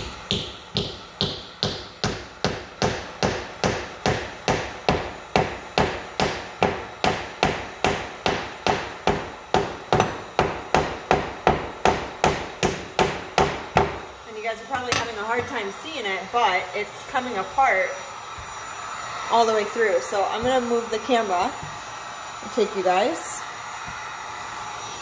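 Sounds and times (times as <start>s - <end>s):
hammer tapping wooden wedge: 0.0s - 14.0s.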